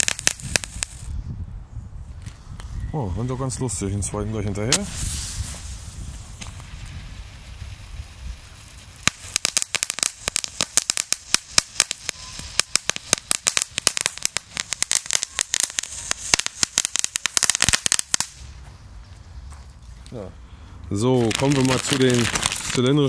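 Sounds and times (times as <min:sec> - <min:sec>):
firecracker crackling: 0:00.0 - 0:01.2, 0:04.7 - 0:18.6, 0:21.1 - 0:23.0.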